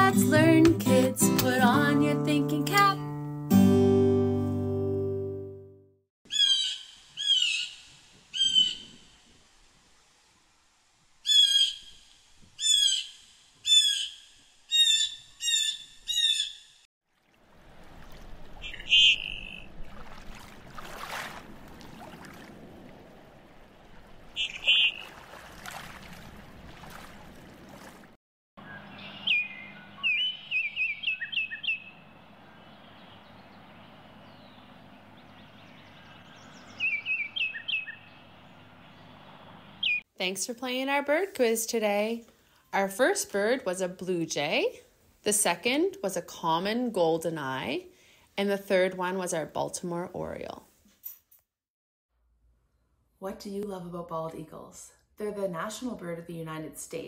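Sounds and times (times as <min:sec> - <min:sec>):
blue jay calls: 0:06.3 - 0:09.1, 0:11.2 - 0:16.8, 0:18.6 - 0:19.8, 0:24.3 - 0:25.4, 0:28.6 - 0:40.0
goldeneye duck calls: 0:18.6 - 0:19.7, 0:24.4 - 0:25.3.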